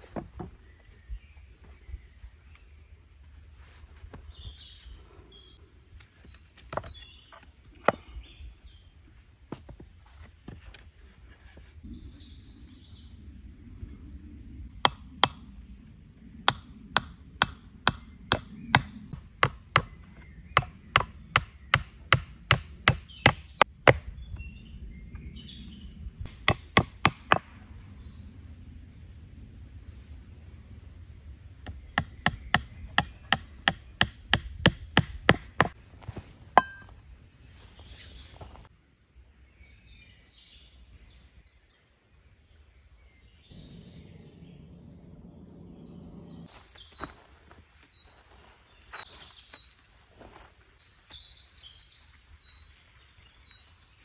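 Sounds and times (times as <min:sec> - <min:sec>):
axe chopping wood: 0:20.6 - 0:24.1, 0:26.5 - 0:27.5, 0:31.7 - 0:35.8, 0:36.6 - 0:36.9.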